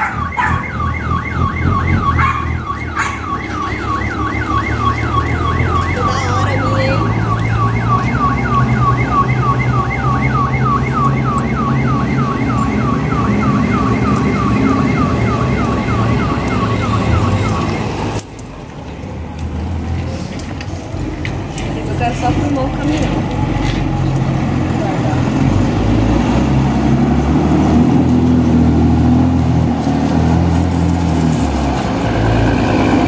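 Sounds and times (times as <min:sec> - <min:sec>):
electronic siren chirping: 0:00.0 - 0:18.1
road background noise: 0:00.0 - 0:33.0.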